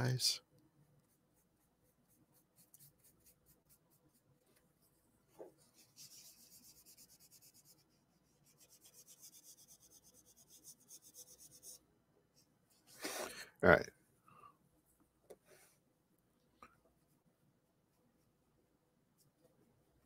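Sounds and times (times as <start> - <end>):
tissue rubbing on paper: 0.8 - 11.8.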